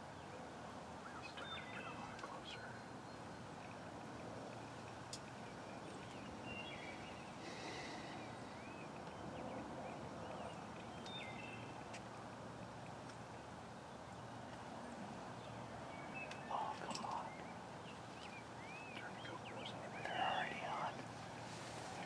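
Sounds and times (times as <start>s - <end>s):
faint bird chirps: 1.0s - 3.8s, 4.5s - 12.0s, 15.4s - 21.2s.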